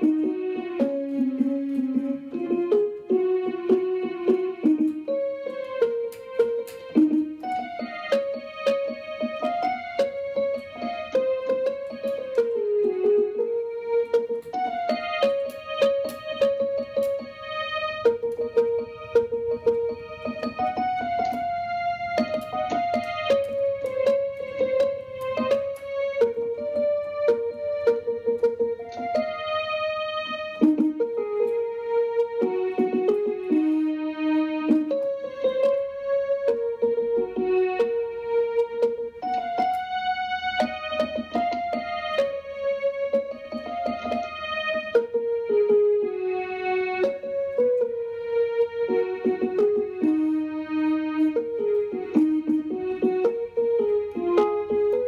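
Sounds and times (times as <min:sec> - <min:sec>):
electronic keyboard piano melody: 0:00.0 - 0:55.0.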